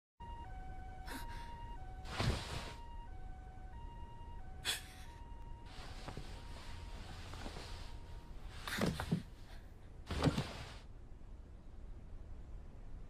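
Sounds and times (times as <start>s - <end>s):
two-tone emergency siren: 0.2s - 8.5s.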